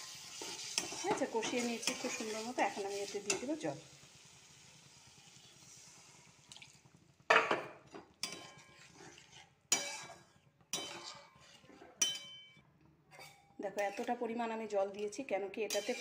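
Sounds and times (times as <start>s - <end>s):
water hissing in hot pan: 0.0s - 6.9s, 15.7s - 16.0s
bowl clanking on metal pan: 7.3s - 8.6s.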